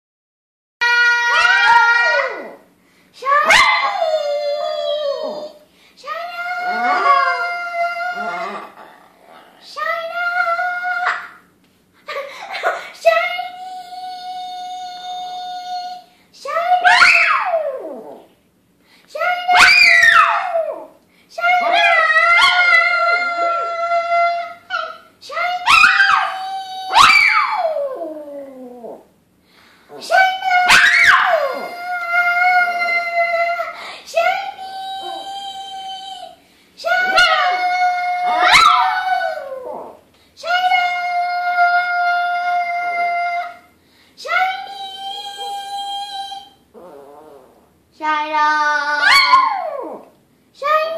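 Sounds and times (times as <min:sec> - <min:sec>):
dog howling: 0:00.9 - 0:02.6, 0:19.5 - 0:20.9, 0:21.5 - 0:24.5, 0:25.6 - 0:29.0, 0:30.0 - 0:33.6, 0:36.9 - 0:40.0, 0:48.7 - 0:50.1
girl singing: 0:30.0 - 0:39.7, 0:40.4 - 0:46.7.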